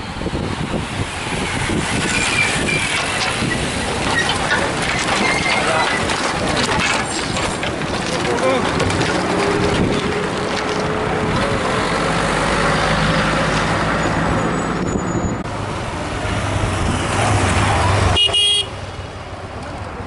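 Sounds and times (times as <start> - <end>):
car passing: 8.2 - 19.6.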